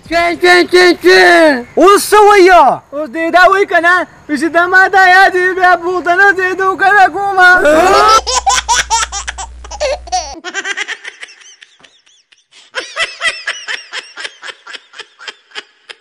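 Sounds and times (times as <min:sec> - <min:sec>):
people laughing: 0:07.6 - 0:08.8.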